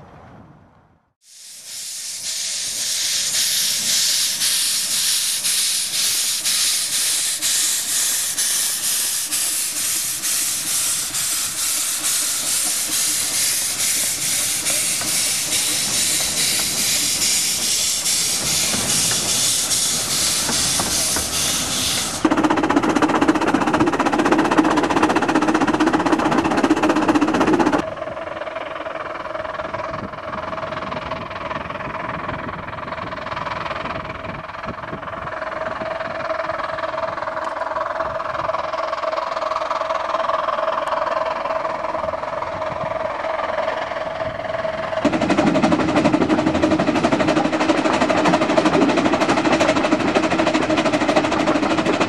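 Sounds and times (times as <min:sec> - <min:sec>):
steam hissing: 0:01.2 - 0:22.3
steam locomotive exhaust beats: 0:01.2 - 0:52.0
steam locomotive running: 0:01.3 - 0:52.0.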